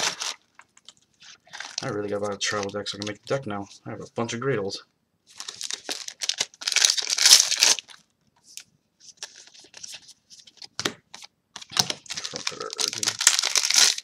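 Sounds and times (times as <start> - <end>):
foil wrapper crinkling and tearing: 1.4 - 2.1, 5.3 - 8.0, 11.6 - 14.0.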